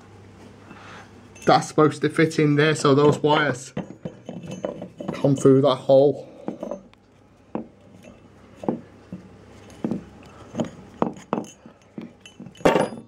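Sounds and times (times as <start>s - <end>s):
metal motor parts knocking: 3.0s - 5.5s, 8.6s - 13.0s.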